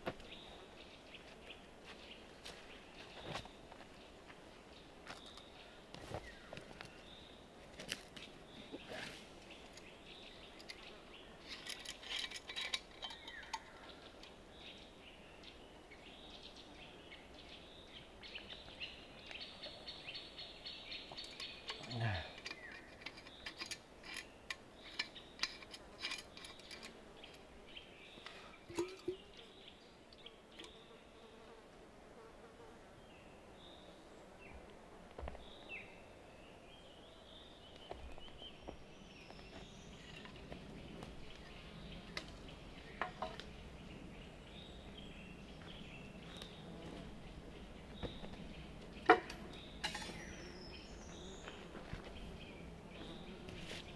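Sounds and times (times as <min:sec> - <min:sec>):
faint insect buzz: 0:26.2 - 0:36.7, 0:38.2 - 0:53.9.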